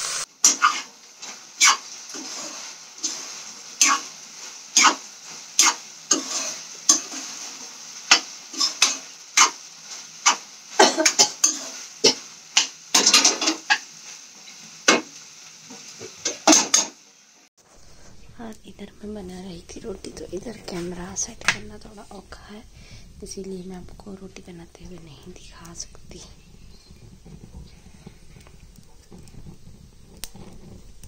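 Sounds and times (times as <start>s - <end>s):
faint sizzle: 0.0s - 31.0s
metal spoon scraping a pan: 0.4s - 15.1s.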